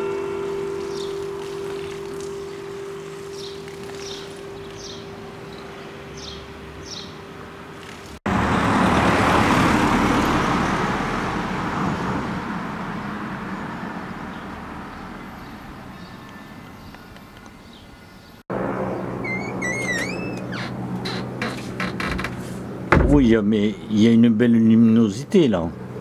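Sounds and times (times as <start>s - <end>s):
church bell hum: 0.0s - 6.8s
road vehicle passing: 0.3s - 16.8s, 18.5s - 23.0s, 25.6s - 26.0s.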